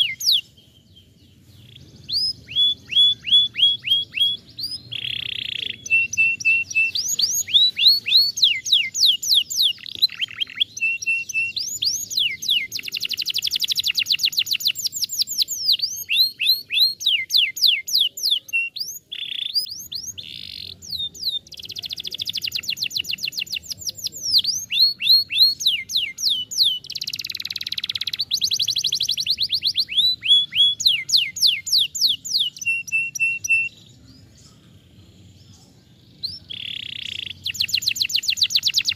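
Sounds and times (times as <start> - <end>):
canary singing: 0.0 - 38.9.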